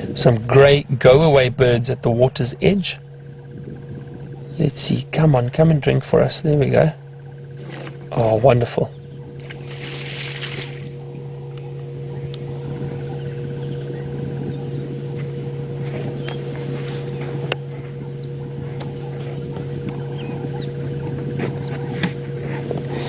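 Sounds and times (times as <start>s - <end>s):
low mechanical hum: 0.0s - 23.0s
bird chirps: 3.1s - 4.6s, 8.8s - 21.9s.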